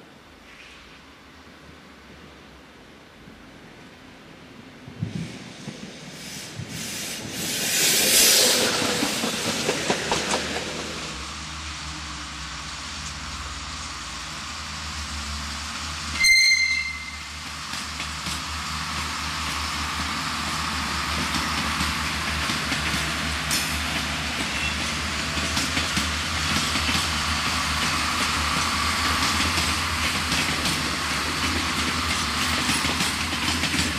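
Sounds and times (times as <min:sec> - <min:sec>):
train hiss: 0:00.0 - 0:01.8, 0:03.5 - 0:33.9
steady low train hum: 0:00.0 - 0:33.9
shrill wheel squeal: 0:16.2 - 0:17.3.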